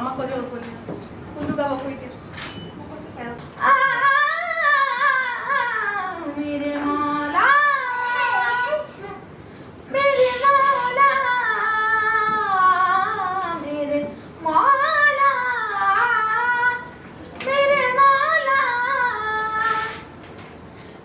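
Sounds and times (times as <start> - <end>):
child singing solo: 6.8 - 9.2.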